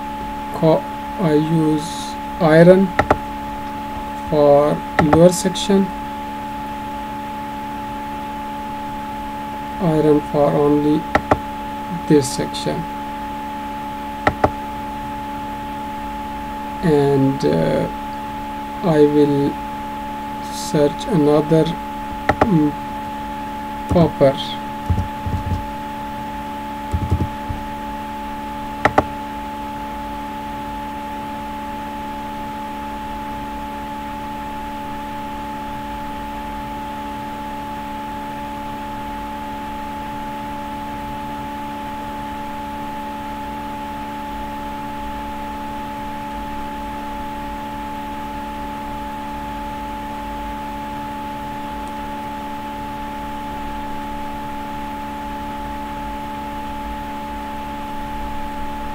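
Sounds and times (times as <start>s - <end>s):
machine hum: 0.0s - 31.0s
sharp click: 3.0s - 3.2s, 14.3s - 14.6s, 28.9s - 29.1s
soft thump: 24.9s - 25.6s, 26.9s - 27.6s.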